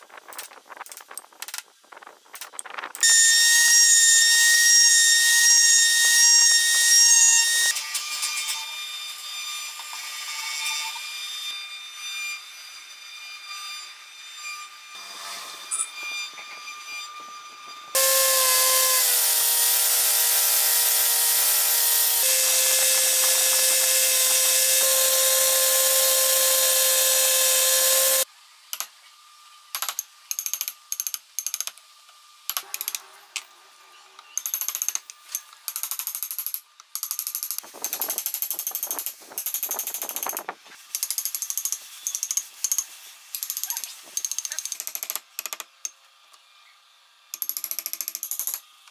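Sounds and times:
power tool motor running: 17.9 - 28.3.

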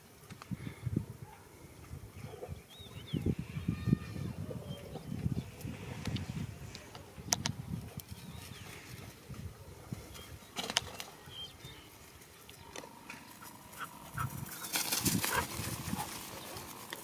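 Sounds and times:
rustle in grass: 11.8 - 17.0
puppies scuffling and snuffling: 13.2 - 17.0.

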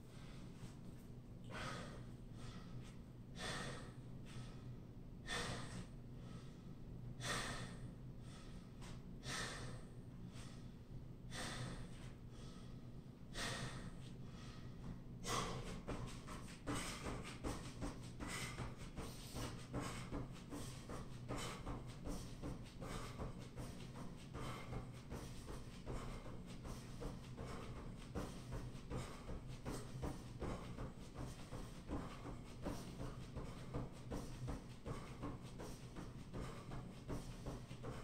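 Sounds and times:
man breathing hard: 0.0 - 38.0
feet thudding from jumping: 15.3 - 38.0.

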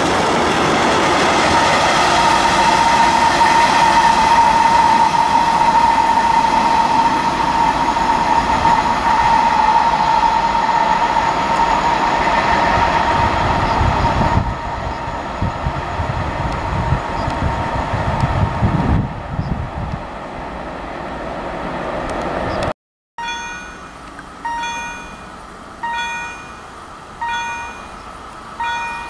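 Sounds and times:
freight train rolling on rails: 0.0 - 29.0
steady high tone: 23.2 - 29.0.

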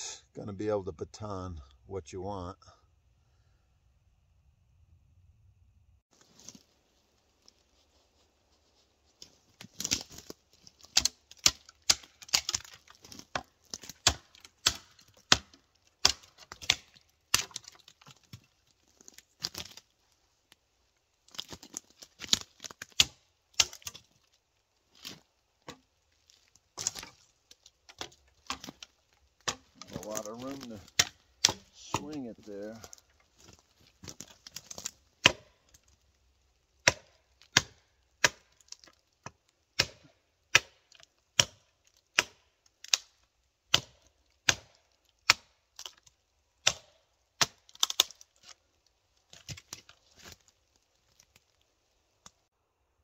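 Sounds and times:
machete chopping wood: 10.8 - 18.4, 22.2 - 24.0, 26.8 - 27.2, 29.4 - 33.0, 34.1 - 35.6, 36.8 - 38.6, 39.8 - 43.1, 43.7 - 45.6, 46.6 - 48.2.

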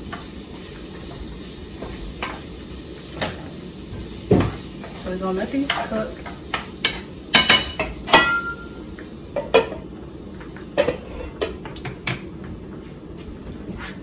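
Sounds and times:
faint sizzle: 0.0 - 14.0
spoon knocking frying pan: 5.6 - 9.9.

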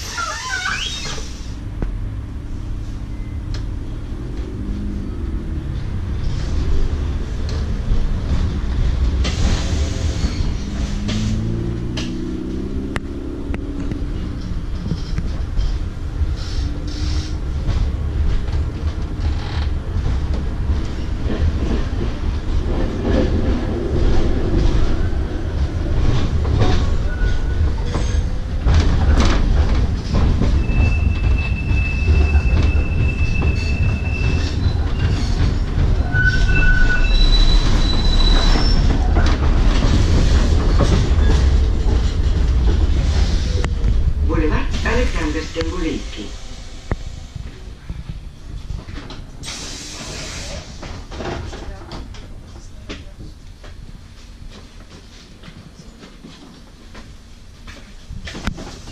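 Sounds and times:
tram wheels rumbling on rails: 0.0 - 58.9
high wheel squeal: 9.2 - 11.4, 30.6 - 39.0
clacks over track joints: 25.6 - 36.8, 37.5 - 44.1.

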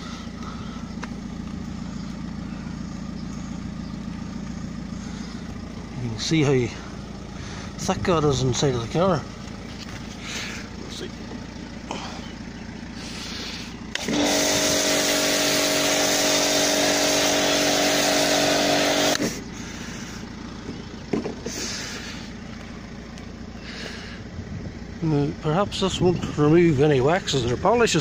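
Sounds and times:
pump motor hum: 13.2 - 20.2.

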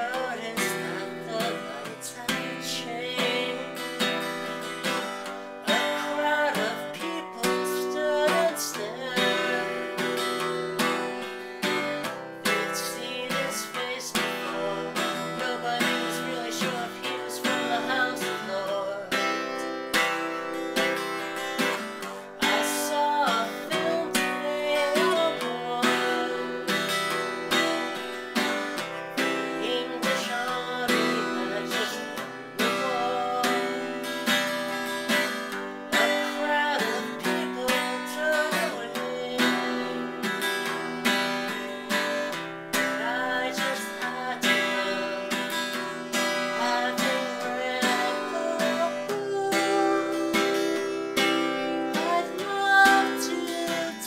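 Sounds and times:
acoustic guitar strumming chords: 0.0 - 54.0.

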